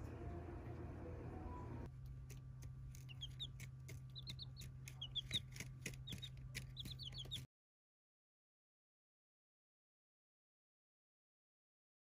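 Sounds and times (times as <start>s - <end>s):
steady low hum: 0.0s - 7.5s
chicks peeping: 2.9s - 7.5s.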